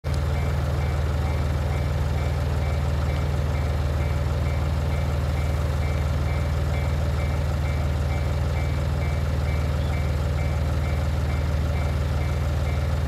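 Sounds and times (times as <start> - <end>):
low engine hum: 0.0 - 13.0
faint high beep: 7.7 - 11.0.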